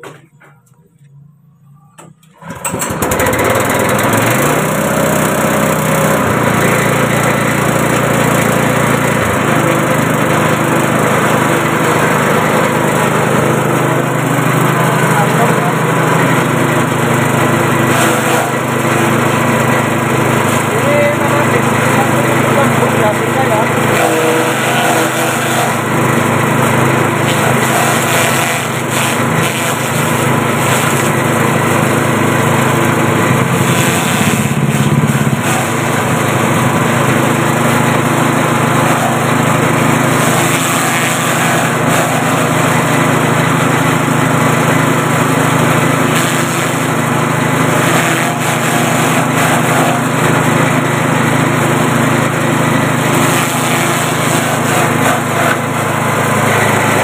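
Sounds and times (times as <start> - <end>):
grass chopper engine running: 2.3 - 57.0
grass stalks being chopped: 23.9 - 25.8, 27.3 - 31.1, 33.7 - 36.0, 40.2 - 42.5, 47.8 - 50.1, 53.2 - 55.6.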